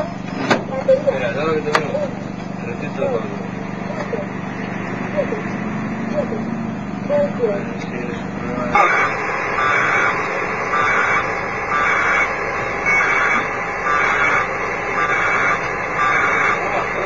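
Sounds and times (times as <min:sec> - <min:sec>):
rhythmic bursts of radio hiss: 0:08.8 - 0:17.0.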